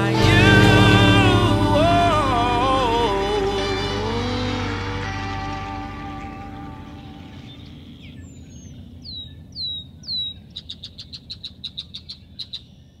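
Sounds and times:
faint low rumble: 0.0s - 8.9s.

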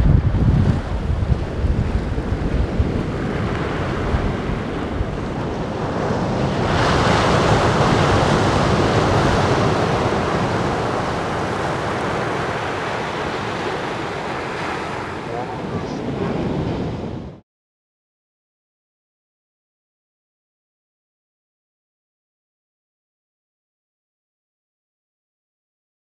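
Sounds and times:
surf breaking on beach: 0.0s - 17.4s
wind buffeting microphone: 0.0s - 17.4s.

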